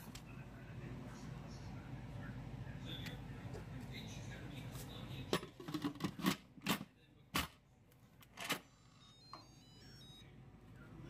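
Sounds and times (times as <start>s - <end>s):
high electronic beeps: 8.9s - 10.3s.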